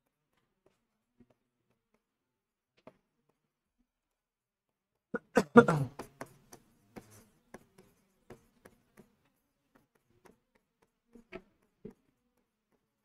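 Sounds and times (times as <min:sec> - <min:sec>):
chalk writing on blackboard: 0:05.9 - 0:13.0.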